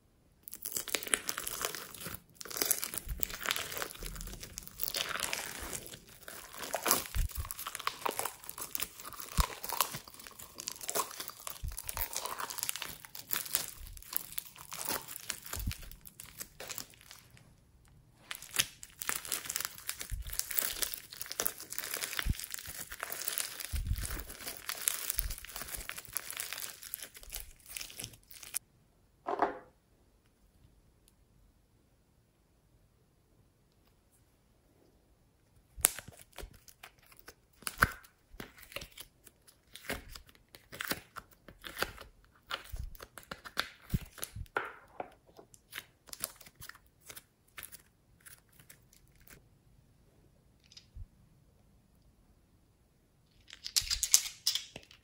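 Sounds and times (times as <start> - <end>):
slime crackling and popping: 0.4 - 17.4, 18.2 - 28.6, 35.7 - 44.6, 45.5 - 49.4.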